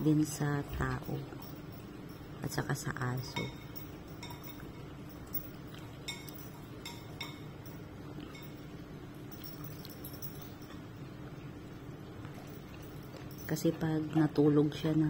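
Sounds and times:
dog eating from ceramic bowl: 0.0s - 15.0s
mouth clinking against bowl: 0.7s - 10.9s.

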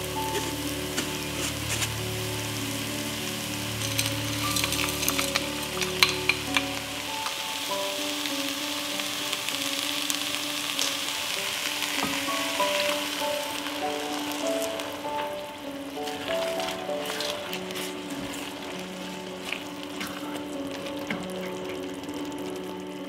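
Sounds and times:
broth pouring into pan: 0.0s - 23.0s
vegetables sizzling in oil: 0.0s - 23.0s
corn kernels clicking into pan: 3.8s - 8.4s.

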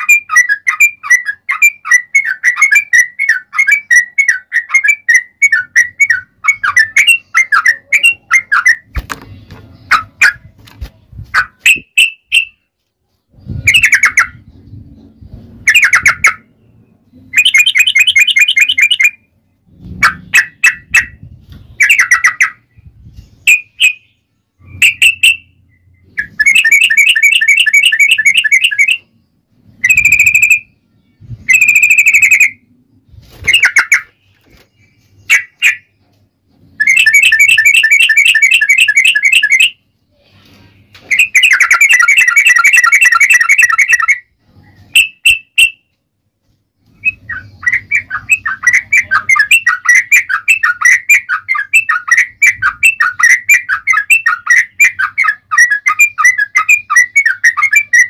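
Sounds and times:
bulbul singing: 0.0s - 10.6s, 13.3s - 32.8s, 33.4s - 40.2s, 41.0s - 46.0s, 46.8s - 58.0s
rapid bird trills: 13.4s - 22.8s, 23.4s - 29.1s, 36.7s - 40.3s, 41.0s - 45.9s, 46.8s - 58.0s.

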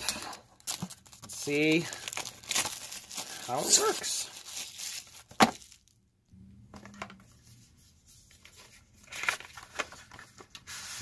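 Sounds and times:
card rustling and scraping: 7.1s - 11.0s.

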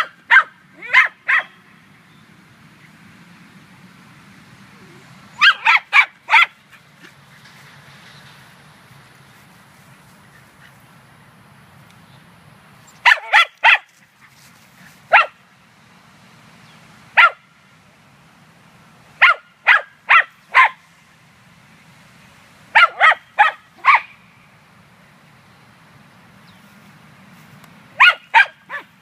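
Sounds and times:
terrier barking: 0.0s - 1.6s, 5.4s - 6.8s, 13.0s - 13.9s, 15.1s - 15.4s, 17.2s - 17.4s, 19.2s - 20.8s, 22.7s - 24.2s, 28.0s - 29.0s.

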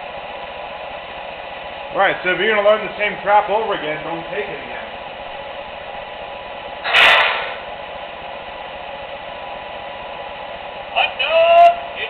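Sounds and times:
loud burst of hiss: 6.8s - 7.7s.

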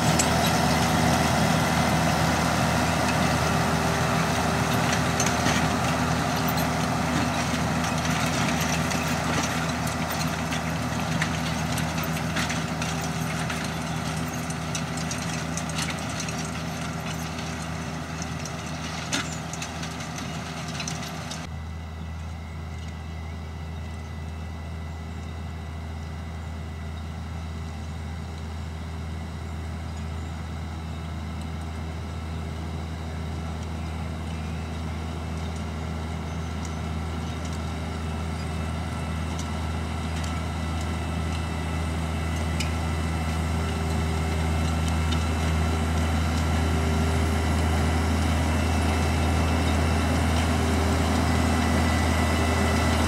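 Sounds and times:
tractor diesel engine running: 0.0s - 53.0s
clatter of ticks and knocks: 4.7s - 21.5s.

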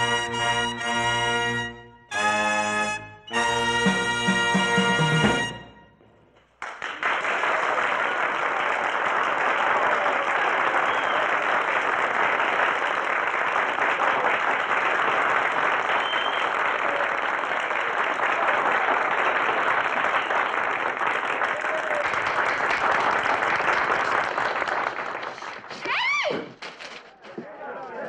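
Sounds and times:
big band brass chord: 0.0s - 6.2s
audience applauding: 6.4s - 28.0s.

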